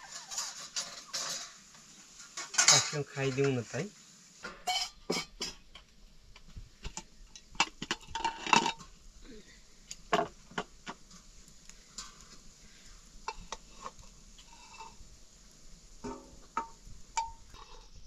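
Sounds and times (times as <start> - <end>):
metal spoon clinking on pots: 2.2 - 3.6, 4.4 - 5.9, 6.8 - 9.0, 16.0 - 18.0.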